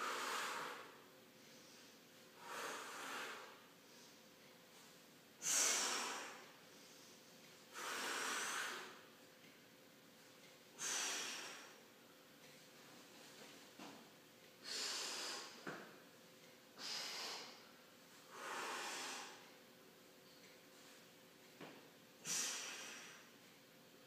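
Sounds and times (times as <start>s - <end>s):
man breathing noisily: 0.0s - 4.2s, 5.4s - 9.1s, 10.8s - 11.8s, 14.6s - 15.8s, 16.8s - 19.6s, 22.2s - 23.4s.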